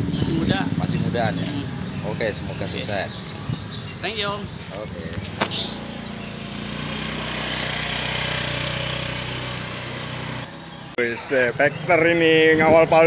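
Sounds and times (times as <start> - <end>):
motorcycle engine running: 3.2 - 13.0.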